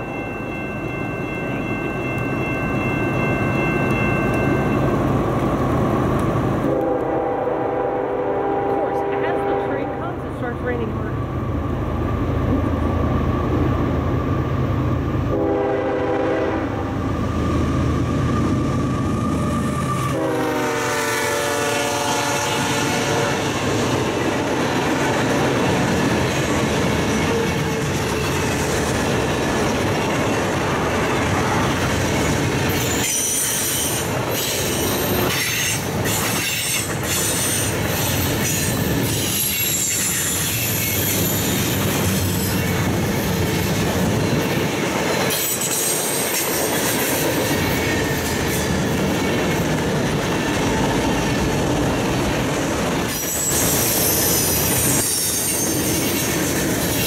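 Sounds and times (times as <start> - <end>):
diesel locomotive rumbling: 0.0 - 57.0
train horn blasts: 6.6 - 10.9, 15.3 - 16.9, 20.1 - 23.6.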